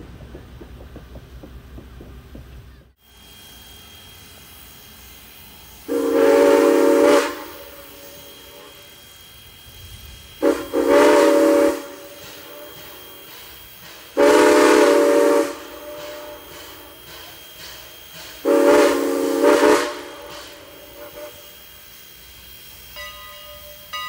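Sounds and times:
train wheels rumbling on rails: 0.0s - 24.0s
train horn blasts: 5.9s - 8.8s, 10.4s - 12.8s, 14.2s - 16.9s, 18.4s - 21.6s.

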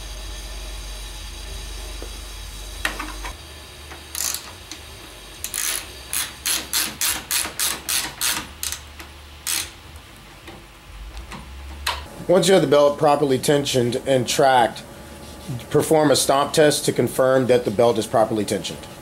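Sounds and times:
ratchet wrench clicking: 4.1s - 4.8s, 5.4s - 9.8s.

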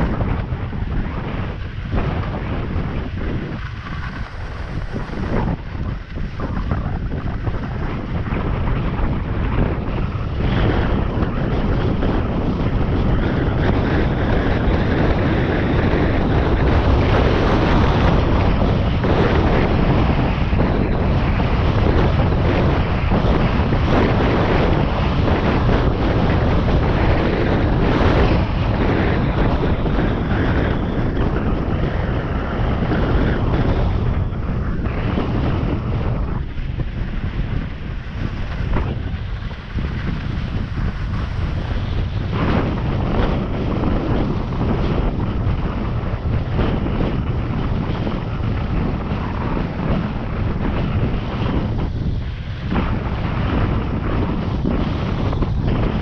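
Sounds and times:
wind buffeting microphone: 0.0s - 56.0s.

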